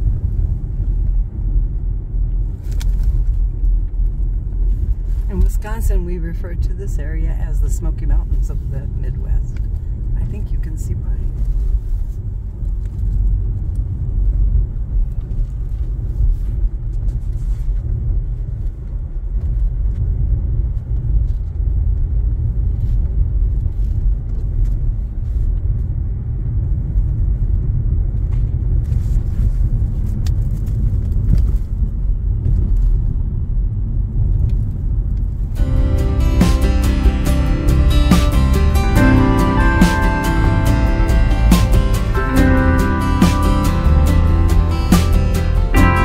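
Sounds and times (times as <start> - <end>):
car engine and tyre rumble: 0.0 - 46.0.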